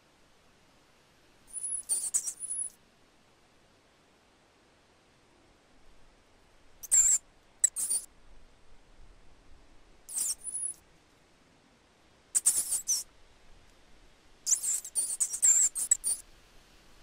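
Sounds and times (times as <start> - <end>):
rat squeaking: 1.5 - 2.7, 6.8 - 8.1, 10.1 - 10.8, 12.4 - 13.0, 14.5 - 16.2.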